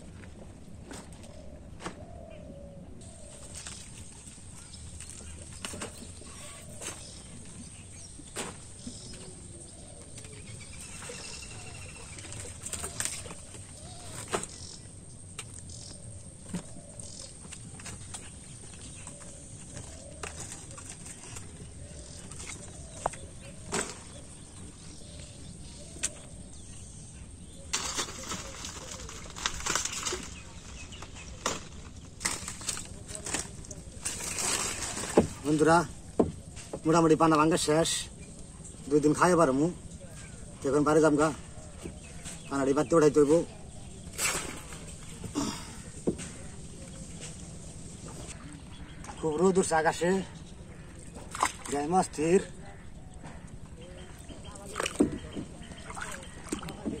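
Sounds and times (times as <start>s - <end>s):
faint bird calls: 0.9s - 57.0s
stems and leaves crackling and rustling: 3.0s - 26.7s, 27.4s - 57.0s
plants snapping and rustling: 27.7s - 35.6s.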